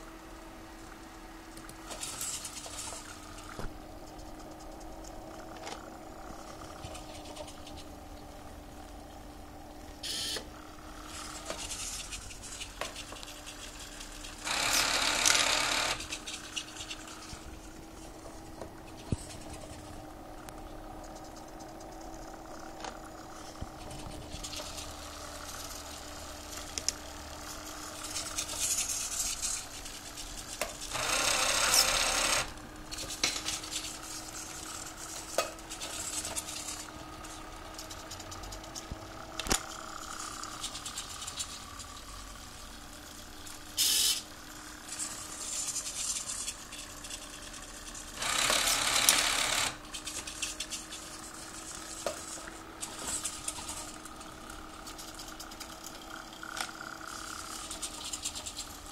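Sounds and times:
steady low hum: 0.0 - 58.9
servo motors whirring: 11.0 - 20.0, 21.3 - 41.7, 44.9 - 56.0.

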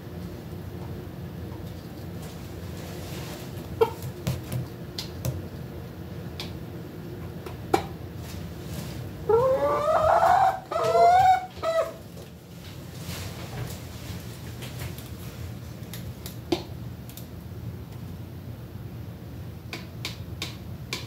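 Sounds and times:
hen crying: 9.3 - 12.0.

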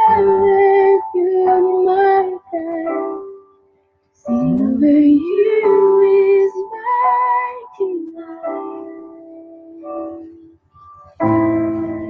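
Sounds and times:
person singing long notes: 0.0 - 3.0, 4.2 - 10.6
instrumental backing: 0.0 - 12.0.

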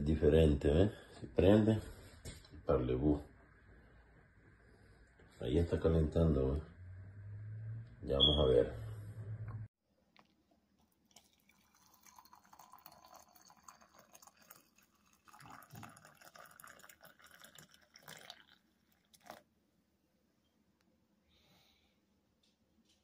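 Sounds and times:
water pouring into pot: 10.8 - 19.5.

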